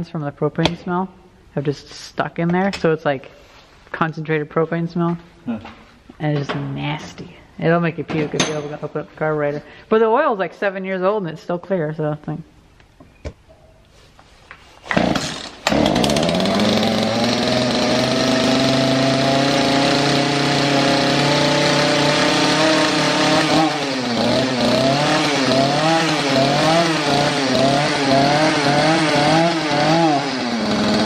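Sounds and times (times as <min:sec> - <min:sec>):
chainsaw engine starting and running: 0:14.8 - 0:31.0.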